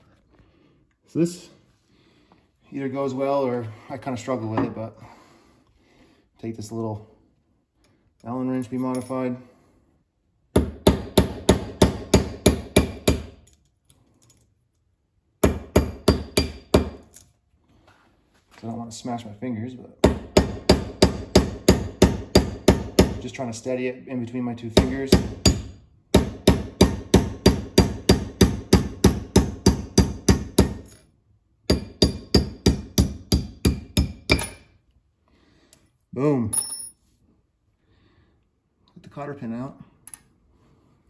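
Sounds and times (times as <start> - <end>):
hammer tapping on metal: 31.7 - 34.7.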